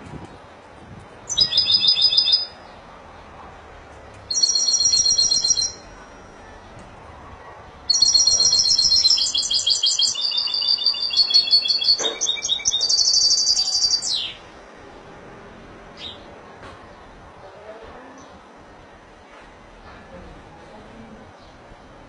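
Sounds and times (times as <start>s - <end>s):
goldfinch twittering song: 1.3s - 2.6s, 7.9s - 14.4s.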